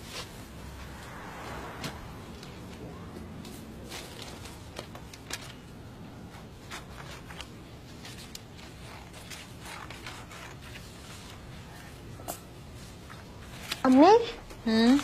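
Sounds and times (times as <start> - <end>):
paper crinkling and rustling: 3.4 - 12.0, 12.8 - 15.0.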